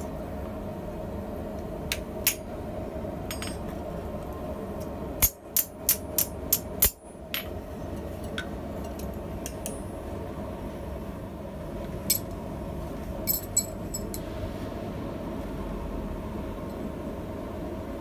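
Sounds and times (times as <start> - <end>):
light metal clinks: 13.3 - 14.2.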